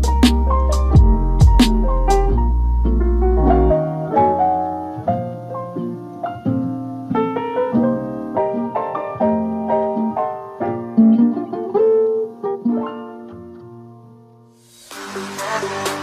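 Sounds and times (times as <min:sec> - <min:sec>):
deep bass note: 0:00.0 - 0:03.7
piano melody: 0:00.0 - 0:14.6.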